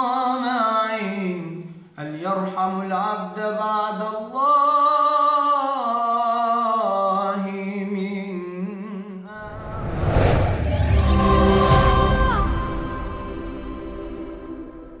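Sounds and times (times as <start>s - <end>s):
man singing unaccompanied: 0.0s - 9.5s
rising whoosh: 9.4s - 15.0s
tv ident music: 9.4s - 15.0s.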